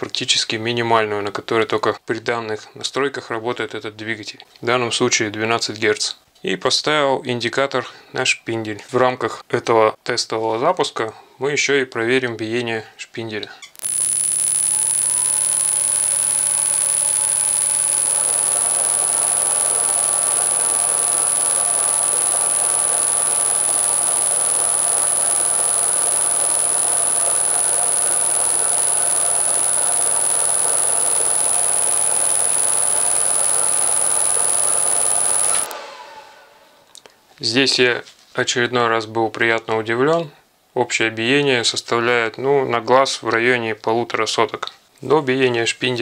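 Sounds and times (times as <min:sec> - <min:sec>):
milling machine running: 0:13.8 - 0:35.8
constant high whine: 0:13.8 - 0:37.0.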